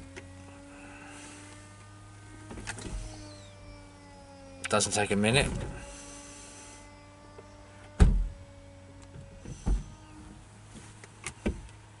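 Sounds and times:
roof motor whine: 0.0 - 12.0
roof clunks: 7.2 - 8.5.

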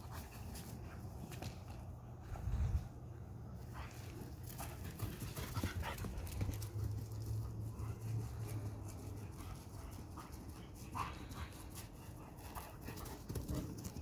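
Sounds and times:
dogs panting: 3.3 - 14.0.

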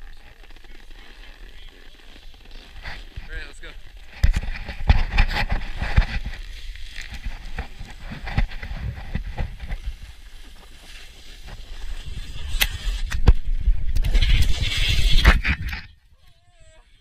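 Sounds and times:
snowboard scraping over snow: 0.0 - 15.8
snowboard knocks and clatter: 4.0 - 10.3
wind rumble on microphone: 7.1 - 10.2.

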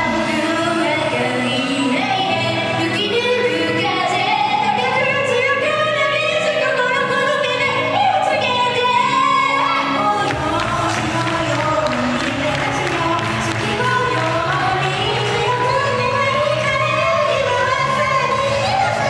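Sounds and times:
loud pop backing track: 0.0 - 19.0
women singing: 0.0 - 19.0.

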